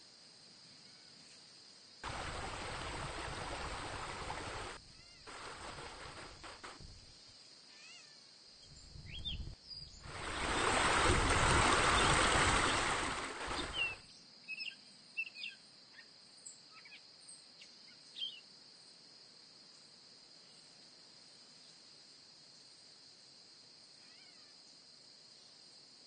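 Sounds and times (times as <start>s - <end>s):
short bird chirps: 8.8s - 10.0s, 13.5s - 14.0s
loud rushing noise: 10.1s - 14.0s.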